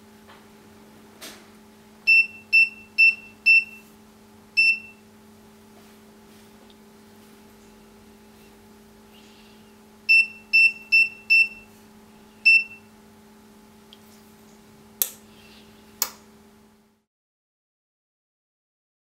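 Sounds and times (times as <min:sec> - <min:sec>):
faint steady hum: 0:00.0 - 0:17.1
keypad beeps: 0:02.1 - 0:03.8, 0:04.6 - 0:05.0, 0:10.1 - 0:11.6, 0:12.5 - 0:12.8.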